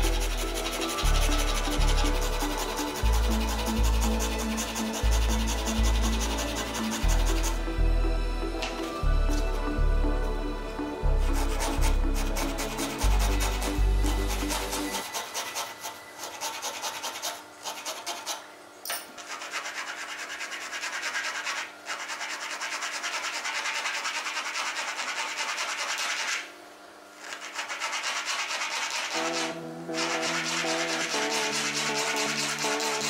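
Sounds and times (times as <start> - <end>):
file rasping on plywood: 0.0 - 7.7, 11.2 - 18.5, 19.2 - 26.5, 27.2 - 33.0
background music: 0.0 - 15.3, 29.1 - 33.0.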